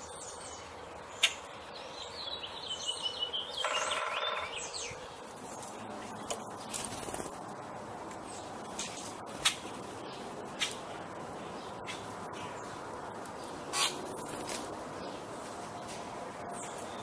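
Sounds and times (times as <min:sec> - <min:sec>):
birds giving harsh calls: 0:01.1 - 0:07.6, 0:08.2 - 0:15.3.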